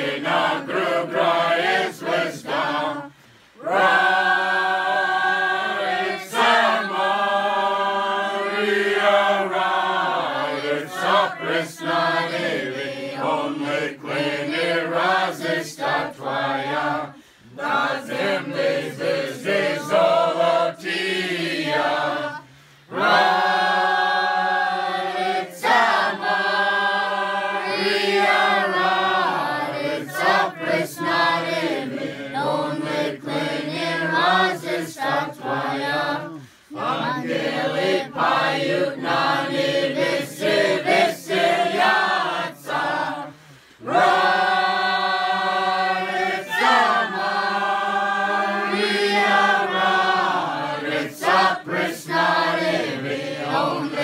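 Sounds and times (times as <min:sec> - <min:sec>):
group singing a carol: 0:00.0 - 0:54.0.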